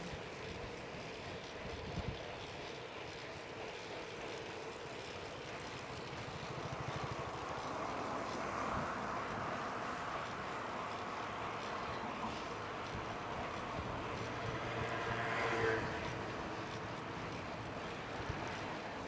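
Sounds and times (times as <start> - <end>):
bicycle road noise: 0.0 - 19.0
wind: 0.0 - 19.0
traffic: 5.5 - 19.0.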